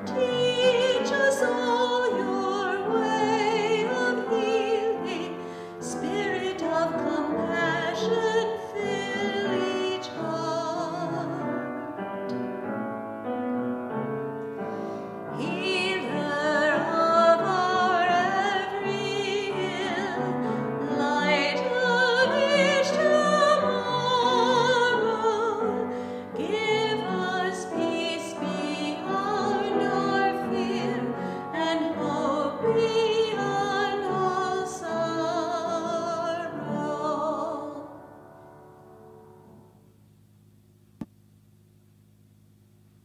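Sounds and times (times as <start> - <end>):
woman singing with vibrato: 0.0 - 11.6, 15.3 - 38.0
piano accompaniment: 0.0 - 39.8.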